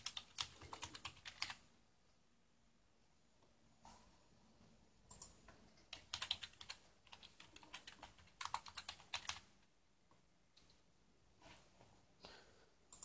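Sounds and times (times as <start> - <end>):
computer keyboard typing: 0.0 - 1.6, 5.1 - 9.5.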